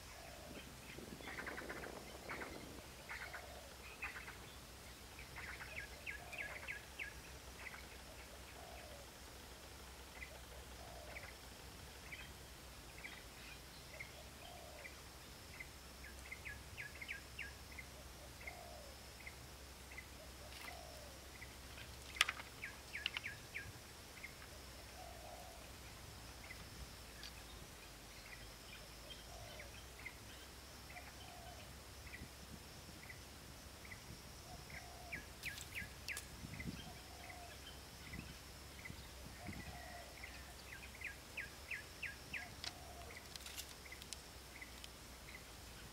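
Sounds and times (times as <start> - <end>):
small birds chirping: 0.0 - 32.4, 33.0 - 45.9
high insect drone: 0.0 - 45.9
low bird call: 34.4 - 44.0.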